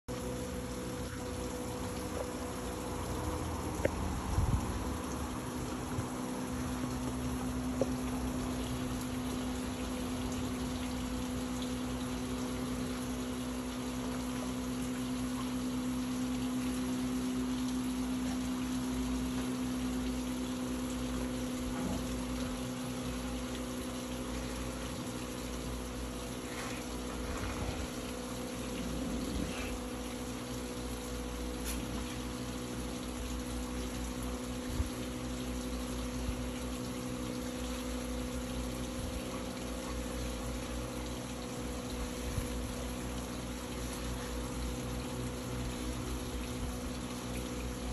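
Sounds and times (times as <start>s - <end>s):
continuous hiss: 0.1s - 47.9s
steady machine hum: 0.1s - 47.9s.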